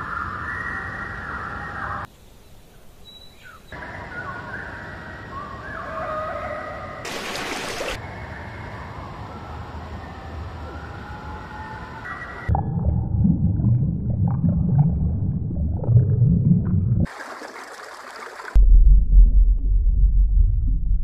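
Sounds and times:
bird calls: 3.0s - 7.6s.

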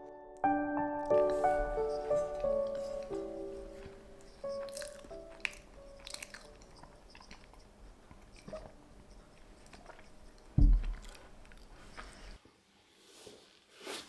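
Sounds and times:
faint chewing: 1.0s - 12.4s.

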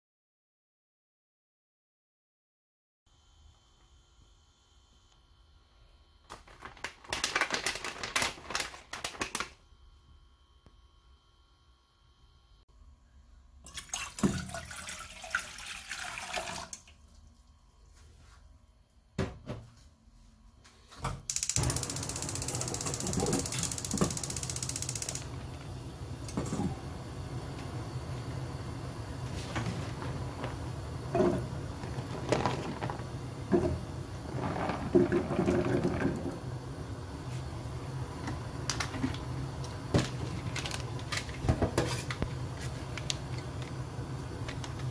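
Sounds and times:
water pouring into metal saucepan: 13.7s - 17.0s
gas burner hissing: 21.3s - 44.9s.

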